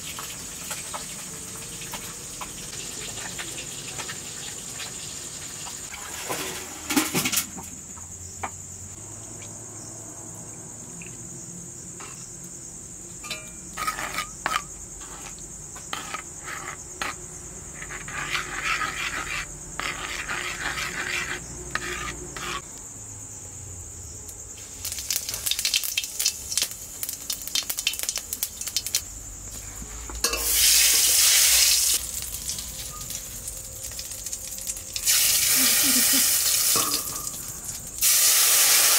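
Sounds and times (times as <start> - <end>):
hot oil sizzling: 0.0 - 7.3, 24.6 - 38.9
high insect trill: 0.0 - 38.9
metal spoon scraping in clay bowl: 13.2 - 22.6.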